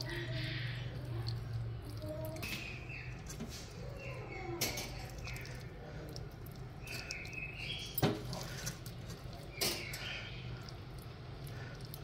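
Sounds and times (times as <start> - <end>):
steady low hum: 0.0 - 12.0
faint high chirps: 6.8 - 8.0.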